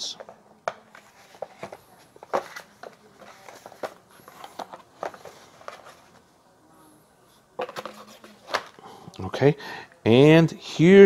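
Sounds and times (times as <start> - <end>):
paper and cardboard rustling: 0.2 - 6.3, 7.6 - 8.8.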